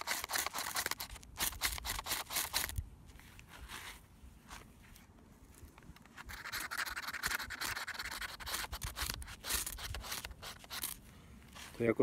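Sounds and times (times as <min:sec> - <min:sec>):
scraper rasping on ferro rod: 0:00.0 - 0:02.7, 0:06.3 - 0:11.0.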